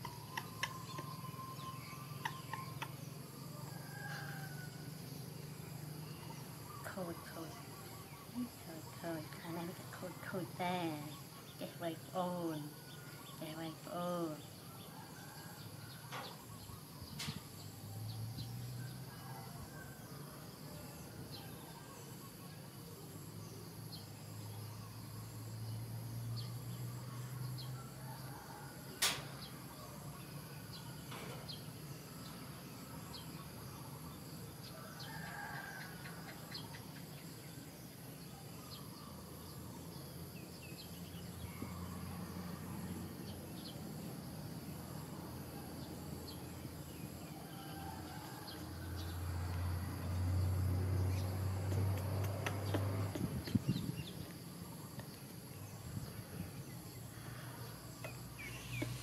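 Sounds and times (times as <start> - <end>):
sharp click: 29.0 - 29.3.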